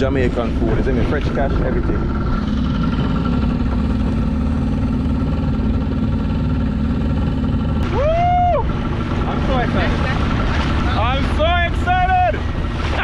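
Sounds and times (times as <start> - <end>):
outboard motor running: 0.0 - 13.0
water rushing past hull: 0.0 - 13.0.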